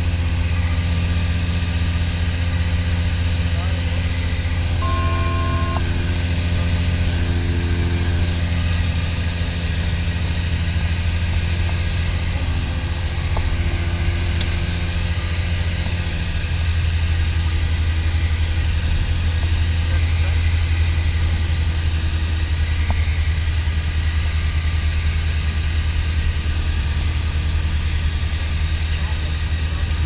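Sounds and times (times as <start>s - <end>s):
aircraft engines droning in cabin: 0.0s - 30.0s
brief electronic tone: 4.8s - 9.0s.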